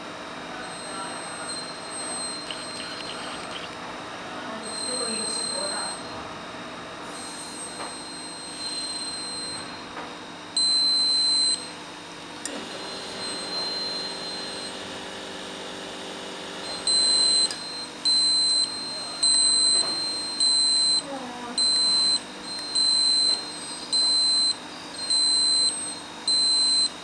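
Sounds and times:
breathalyzer beeps: 0.8s - 3.8s, 4.7s - 6.0s, 16.9s - 25.7s
soft steady tone: 2.3s - 3.8s.

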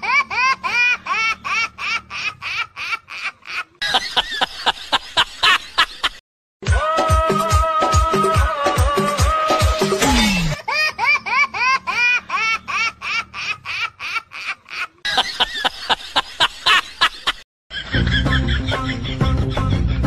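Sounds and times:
high-pitched laughter: 0.0s - 6.2s, 10.3s - 20.0s
background music: 6.6s - 11.4s, 17.8s - 20.0s.

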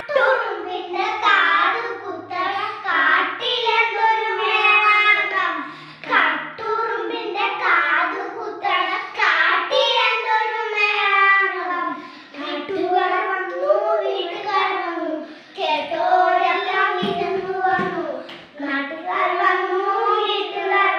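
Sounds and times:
children singing unaccompanied: 0.0s - 20.9s.

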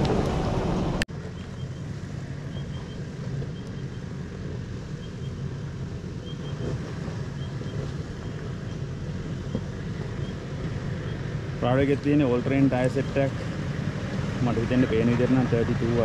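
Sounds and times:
vehicle engine rumbling: 0.0s - 16.0s.

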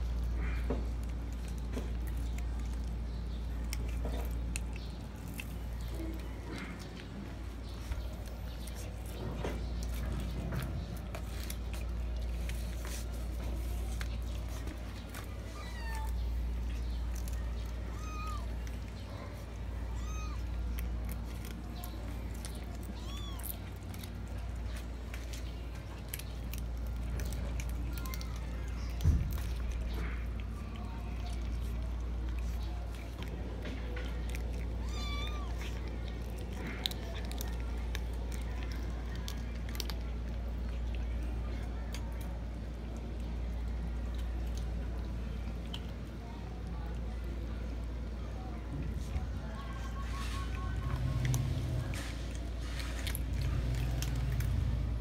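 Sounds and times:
cats chewing: 0.0s - 55.0s
cat mewing: 17.9s - 18.6s, 19.8s - 20.6s, 22.8s - 23.8s, 34.7s - 35.9s.

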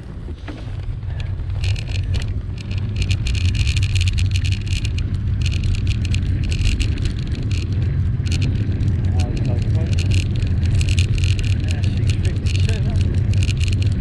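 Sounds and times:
wind buffeting microphone: 0.0s - 14.0s
bicycle freewheel ticking: 1.4s - 14.0s.

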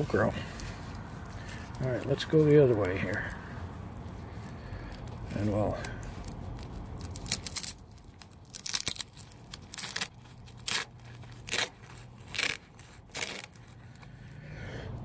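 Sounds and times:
velcro ripping apart: 0.0s - 14.4s.

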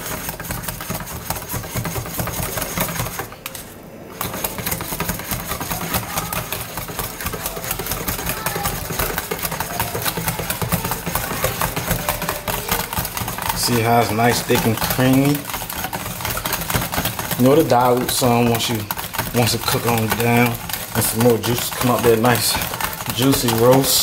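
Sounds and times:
whisk rattling against metal bowl: 0.0s - 24.0s.

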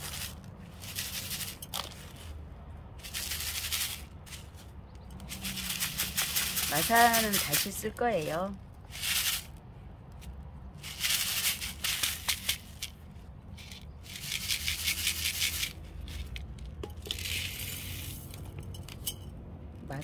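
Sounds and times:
grit rattling in plastic sieve: 0.0s - 2.3s, 3.0s - 4.6s, 5.2s - 8.0s, 8.9s - 9.6s, 10.8s - 13.0s, 13.6s - 18.5s.

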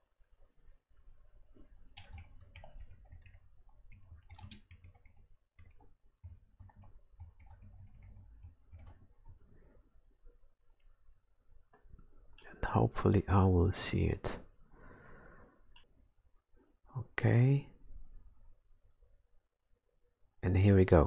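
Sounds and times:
keyboard typing and mouse clicks: 1.7s - 9.6s.

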